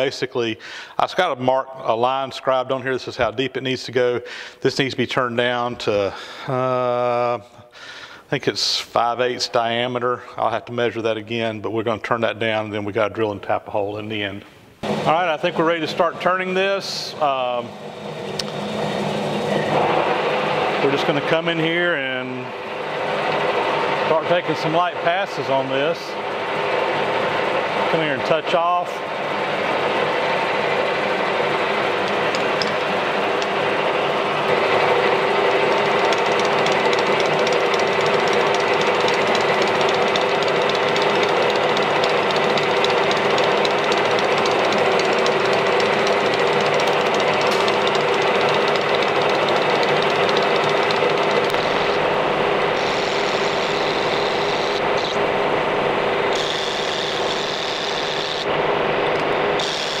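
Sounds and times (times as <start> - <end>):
lathe tool cutting metal: 14.8 - 60.0
metal lathe hum and gear whine: 14.8 - 60.0.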